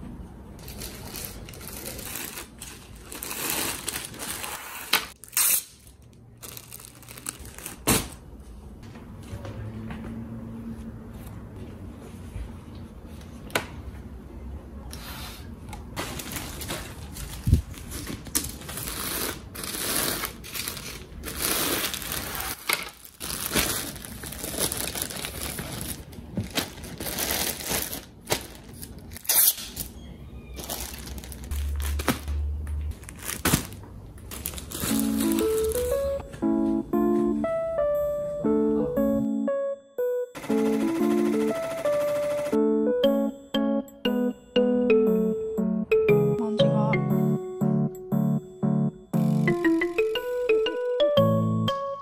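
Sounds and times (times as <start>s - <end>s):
plastic bags crinkling: 0.6s - 8.2s, 16.0s - 29.9s, 30.6s - 35.9s.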